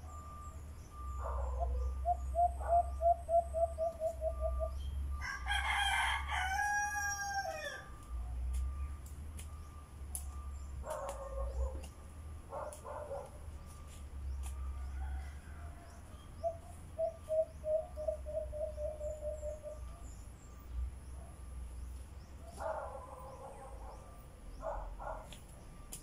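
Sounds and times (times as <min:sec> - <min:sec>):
dog barking: 0:01.2 - 0:01.9, 0:02.6 - 0:03.0, 0:10.8 - 0:11.9, 0:12.5 - 0:13.4, 0:22.4 - 0:25.4.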